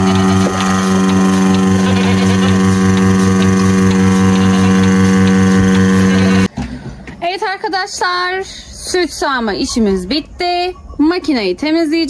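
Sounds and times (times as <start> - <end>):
milking machine pump humming: 0.0 - 6.5.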